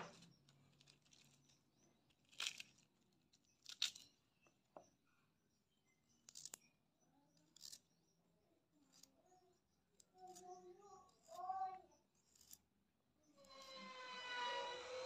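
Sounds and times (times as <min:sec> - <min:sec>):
cabbage leaves torn by hand: 0:02.2 - 0:02.8, 0:03.6 - 0:04.1
knife cutting carrot: 0:06.3 - 0:06.7, 0:07.5 - 0:07.9.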